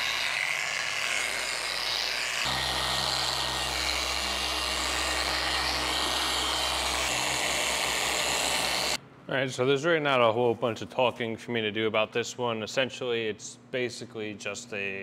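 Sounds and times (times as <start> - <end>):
machine polisher running: 0.0 - 9.0.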